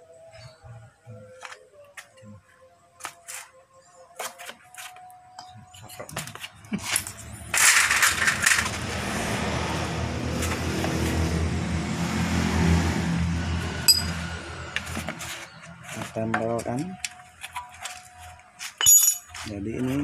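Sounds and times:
engine humming: 0:06.4 - 0:18.5.

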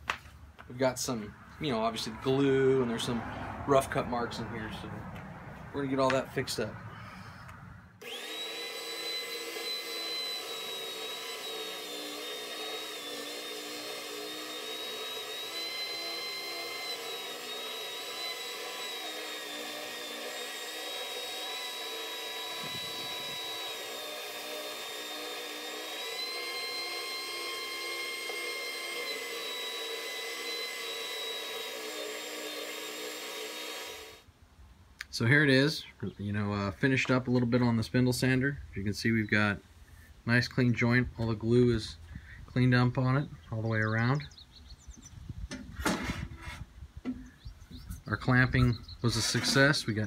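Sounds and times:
spindle sander motor whine: 0:08.0 - 0:34.3
wood sanding against drum: 0:49.1 - 0:49.9.

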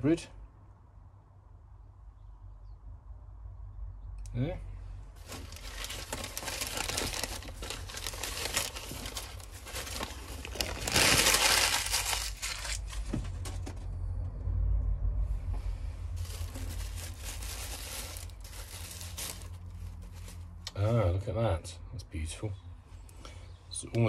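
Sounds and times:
packing wrap crinkling: 0:05.2 - 0:13.6, 0:16.2 - 0:20.5.

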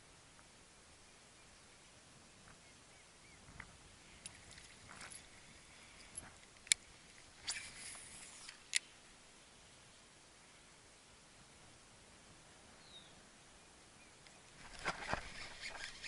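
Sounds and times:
short rustles: 0:14.6 - 0:16.0
fishing reel clicks: 0:14.9 - 0:16.0.

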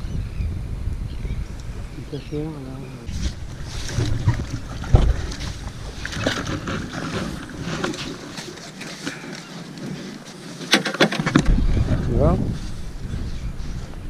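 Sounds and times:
low rumble: 0:11.3 - 0:14.0.

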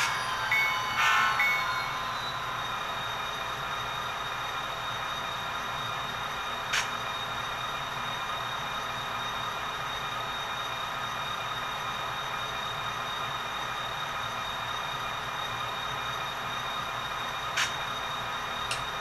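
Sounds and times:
high tones: 0:00.0 - 0:04.2
model locomotive engine idling sound: 0:00.0 - 0:19.0.

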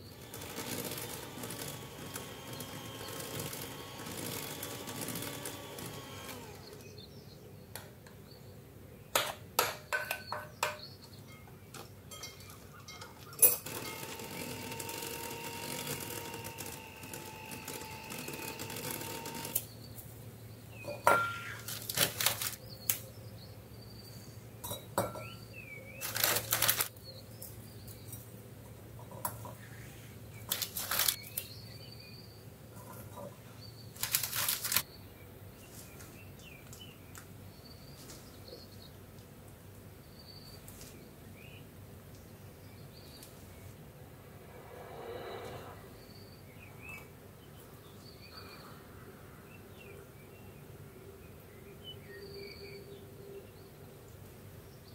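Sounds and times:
electric hand mixer whirring: 0:00.0 - 0:06.9, 0:13.6 - 0:19.6.

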